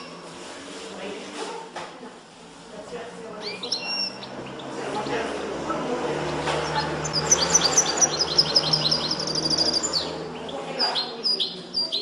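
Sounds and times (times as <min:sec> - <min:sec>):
goldfinch singing: 0:03.4 - 0:12.0.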